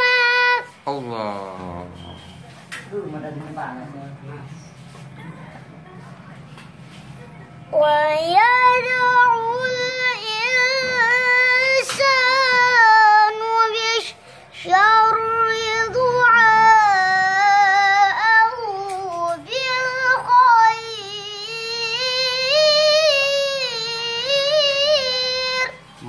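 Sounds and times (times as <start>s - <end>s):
boy chanting melodically: 0.0s - 1.9s, 7.7s - 25.8s.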